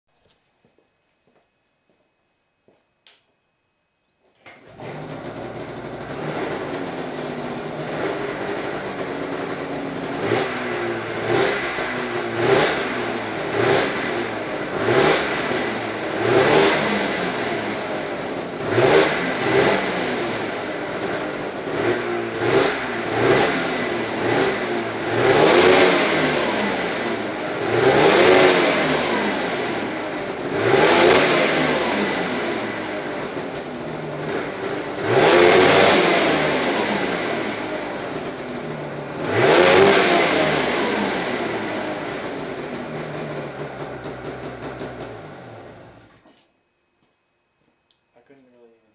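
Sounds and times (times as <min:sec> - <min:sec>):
snowmobile engine revving: 0:04.7 - 0:46.0.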